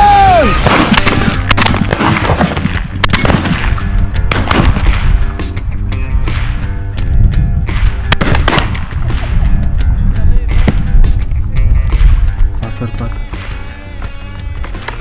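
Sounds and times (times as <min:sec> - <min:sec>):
rock music: 0:00.0 - 0:15.0
shotgun shots: 0:00.5 - 0:05.2, 0:07.7 - 0:09.4.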